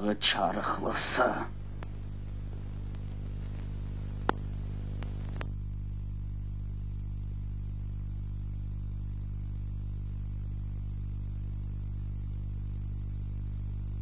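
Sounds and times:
film soundtrack hiss: 0.0s - 14.0s
low electrical hum: 0.0s - 14.0s
sharp clicks: 1.8s - 5.5s.

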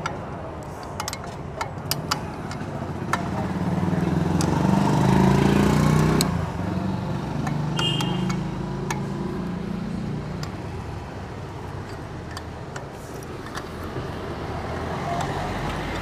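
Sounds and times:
spoke wrench clicking: 0.0s - 3.4s, 7.4s - 9.2s, 10.3s - 10.6s, 11.6s - 13.8s.

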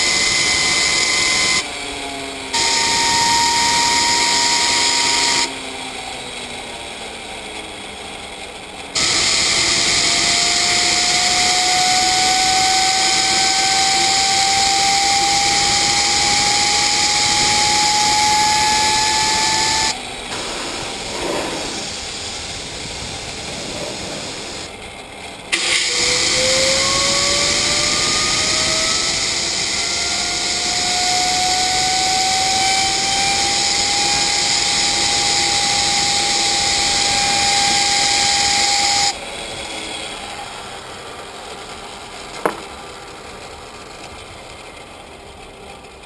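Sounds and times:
turbo whine: 0.0s - 44.4s
compressed air blasts hissing: 20.3s - 24.7s.

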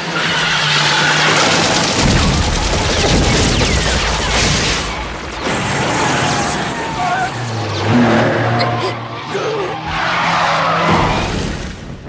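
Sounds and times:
machine-gun fire: 1.1s - 5.8s.

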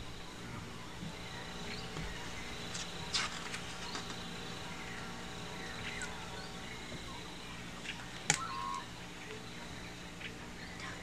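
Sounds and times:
room hum: 0.0s - 11.0s
paper page turning: 2.7s - 4.2s.

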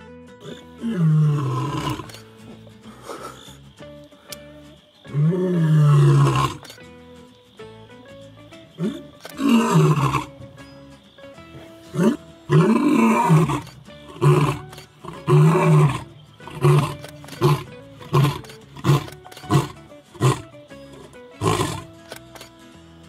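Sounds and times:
lion roaring: 0.4s - 2.2s, 5.1s - 6.8s, 8.8s - 10.4s, 11.6s - 21.9s.

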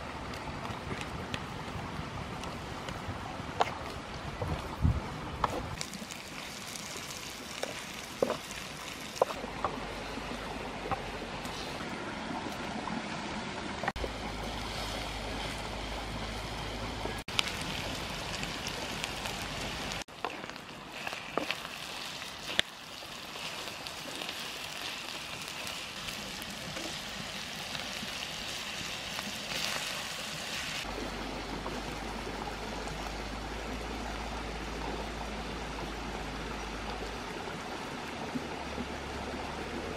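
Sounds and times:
meat sizzling in a wok: 17.3s - 30.9s.

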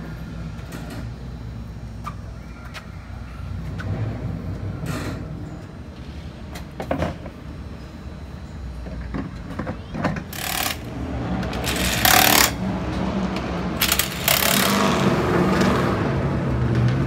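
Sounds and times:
impact wrench bursts: 10.3s - 12.7s, 13.8s - 15.2s.

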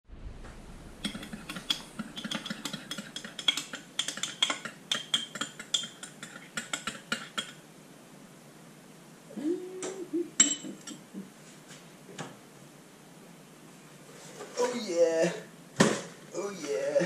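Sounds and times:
spoon clinking in a ceramic mug: 10.4s - 11.0s.

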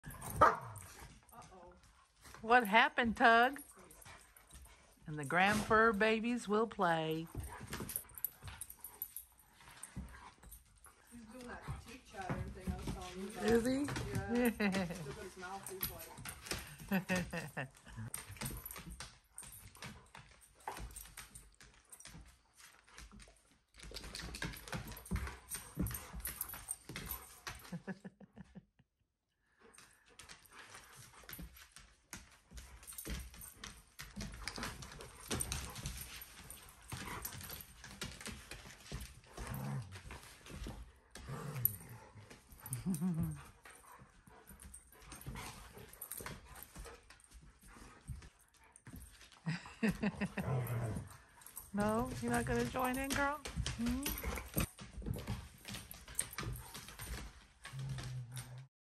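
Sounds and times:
paws scuffling on wood floor: 7.1s - 28.0s, 30.1s - 58.6s
dog claws clicking on wood floor: 7.3s - 17.3s, 51.0s - 58.6s
dogs growling: 38.7s - 46.8s, 49.5s - 55.2s, 56.2s - 58.7s.

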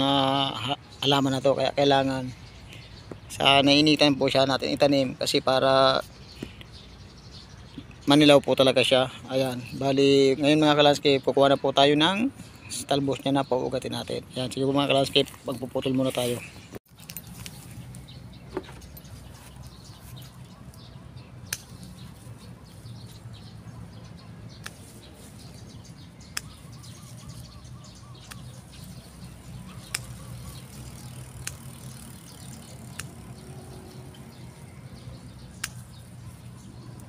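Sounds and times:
pruning shears clicking: 21.4s - 22.1s, 24.6s - 25.0s, 26.2s - 26.7s, 28.2s - 29.0s, 29.8s - 33.5s, 35.5s - 36.1s.

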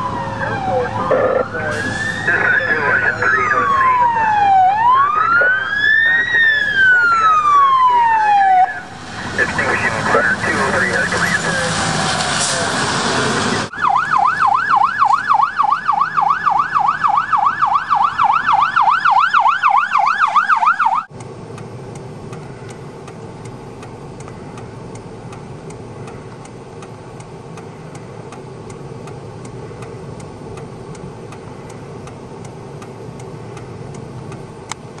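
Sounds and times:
siren yelping: 0.0s - 12.4s, 13.6s - 21.1s
low engine rumble: 0.0s - 16.0s
faint regular ticking: 21.2s - 35.0s.

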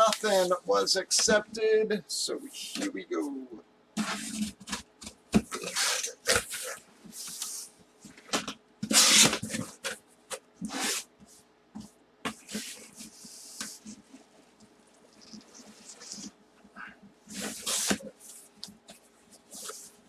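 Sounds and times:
cardboard flaps scraping and rustling: 17.3s - 18.3s.

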